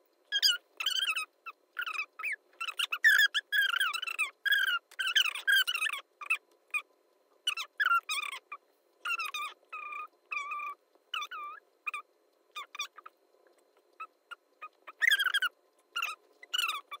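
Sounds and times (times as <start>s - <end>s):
high-pitched squeaky voice chattering: 7.5s - 12.0s, 14.0s - 17.0s.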